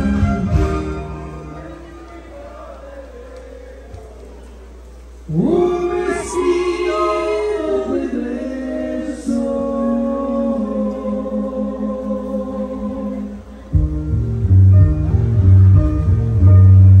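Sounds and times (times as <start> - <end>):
live music chord of held notes: 0.0 - 3.6, 5.1 - 17.0.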